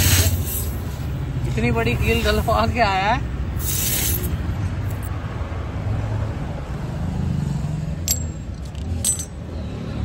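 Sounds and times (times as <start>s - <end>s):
metal tool clattering on floor: 8.0s - 9.4s.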